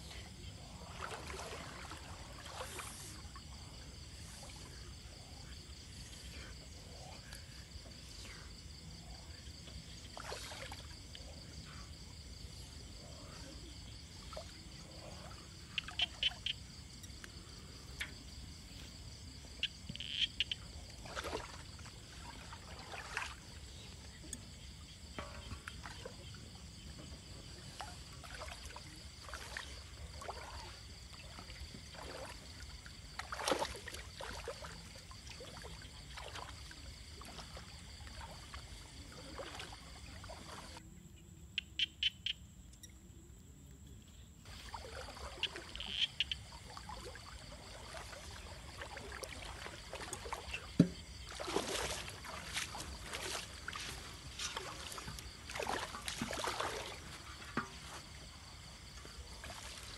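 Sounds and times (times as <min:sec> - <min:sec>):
night insects chorus: 0:00.0 - 0:59.9
water splashes and basin knocks: 0:00.7 - 0:03.8, 0:10.0 - 0:11.2, 0:18.0 - 0:40.8, 0:44.5 - 0:59.9.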